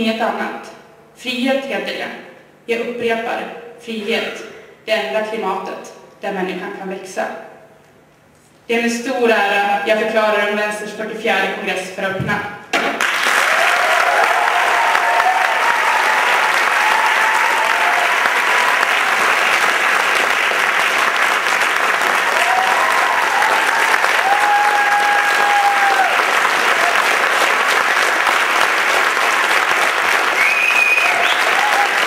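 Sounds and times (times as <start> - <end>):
audience applauding: 13.0 - 32.0
audience cheering: 13.1 - 32.0.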